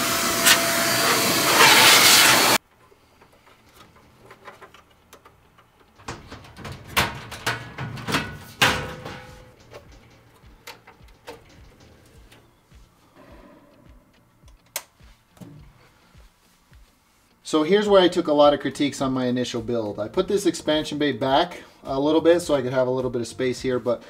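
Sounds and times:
electric duster blowing: 0:00.0 - 0:02.6
equipment clicks and knocks: 0:03.3 - 0:12.8.

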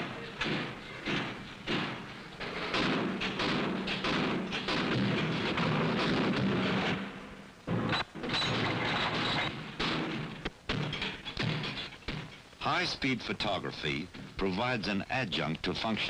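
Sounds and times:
rifle shots with echo: 0:00.4 - 0:07.9.

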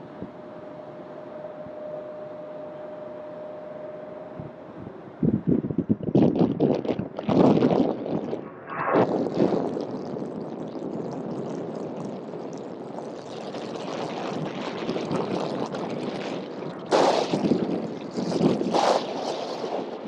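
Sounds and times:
wind buffeting microphone: 0:04.4 - 0:20.0
jet engines roaring: 0:06.7 - 0:20.0.

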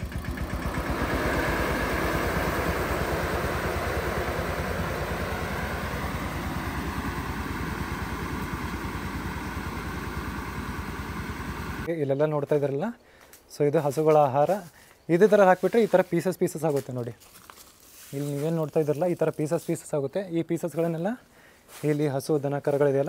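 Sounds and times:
air-blast sprayer blower: 0:00.0 - 0:11.9
tractor engine running: 0:00.0 - 0:11.9.

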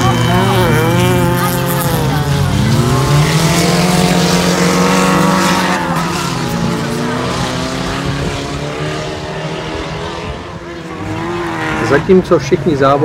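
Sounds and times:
car engines revving: 0:00.0 - 0:13.0.

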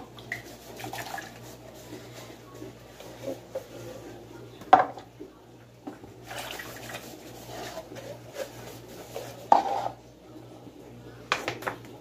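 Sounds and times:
dish scrubbing: 0:00.0 - 0:05.1, 0:05.9 - 0:10.1
dish knocking against sink: 0:04.6 - 0:05.1, 0:09.5 - 0:09.9.

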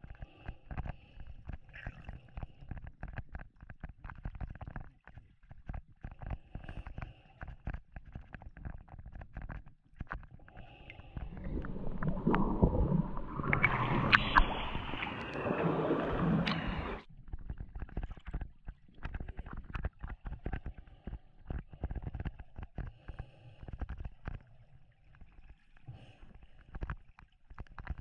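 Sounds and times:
underwater clicks and bubbling: 0:00.0 - 0:28.0
water splashing and sloshing: 0:09.4 - 0:21.8.

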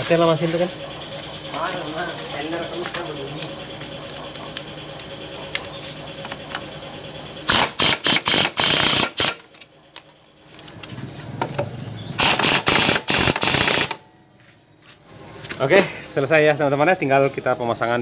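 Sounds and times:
impact wrench hammering: 0:07.5 - 0:09.5, 0:12.2 - 0:14.0.

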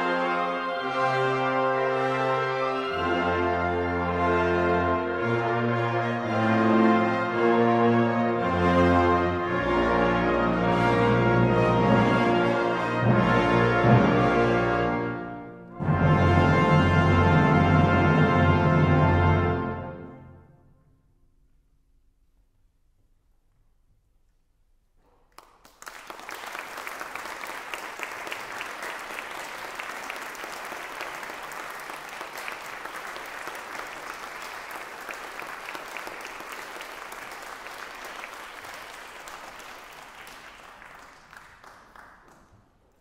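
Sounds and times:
audience applauding: 0:25.1 - 0:43.0.

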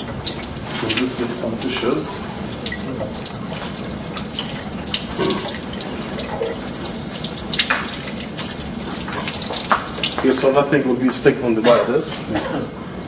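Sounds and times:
tap water splashing: 0:00.0 - 0:10.4.

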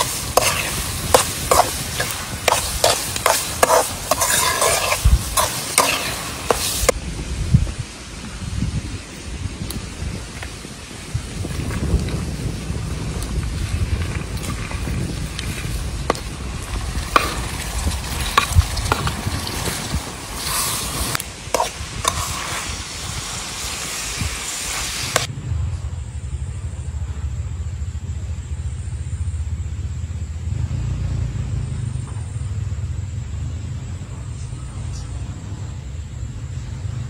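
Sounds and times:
metal spoon scraping a pan: 0:00.0 - 0:06.9, 0:17.1 - 0:22.7
beans sizzling in a frying pan: 0:00.0 - 0:07.0, 0:13.6 - 0:25.3
low steady rumble: 0:25.2 - 0:37.0.

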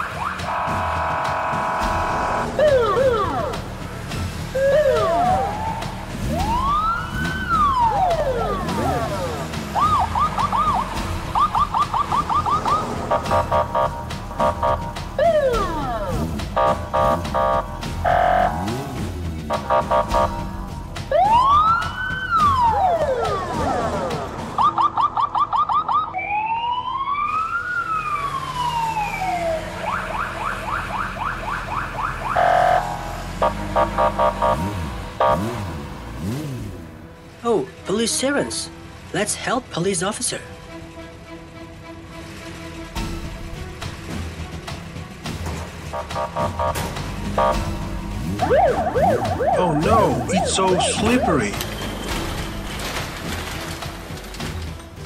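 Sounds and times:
police siren wailing and yelping: 0:00.0 - 0:03.7, 0:04.5 - 0:18.8, 0:19.5 - 0:35.5, 0:48.3 - 0:51.9.

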